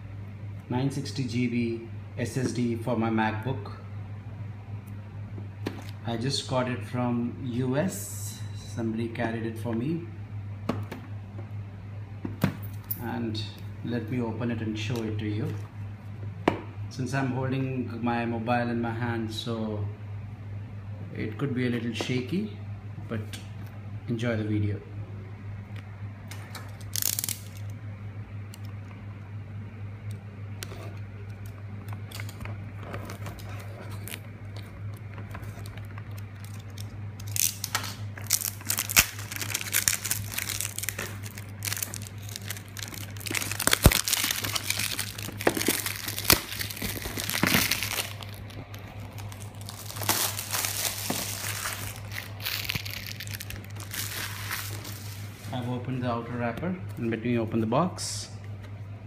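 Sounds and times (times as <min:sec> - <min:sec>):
plastic wrap crinkling: 0:26.6 - 0:27.7, 0:32.0 - 0:55.5.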